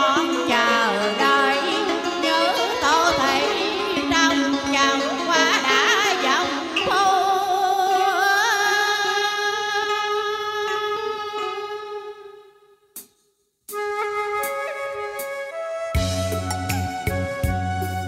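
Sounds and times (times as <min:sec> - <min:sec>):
woman singing with vibrato: 0:00.0 - 0:12.5
instrumental backing music: 0:00.0 - 0:18.0.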